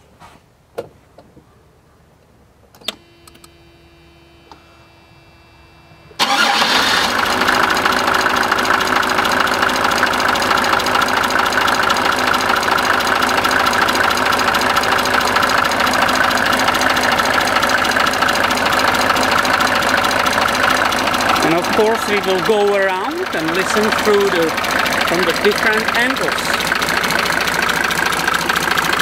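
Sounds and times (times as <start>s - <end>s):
diesel engine starting and idling: 5.9s - 29.0s
engine ticking and knocking: 6.2s - 29.0s.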